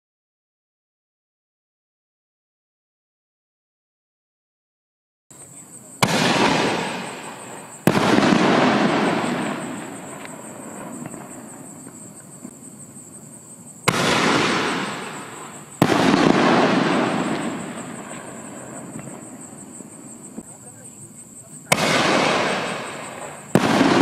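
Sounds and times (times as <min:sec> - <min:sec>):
firework bursts with crackling: 0:05.3 - 0:13.0, 0:13.7 - 0:24.0
firework shell launching bang: 0:06.0 - 0:10.3, 0:13.9 - 0:18.0, 0:21.7 - 0:24.0.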